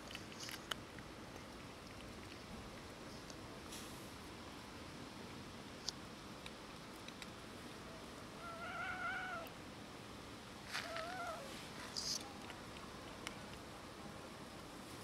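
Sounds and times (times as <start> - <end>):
cat meowing: 8.4 - 9.5, 10.8 - 11.5.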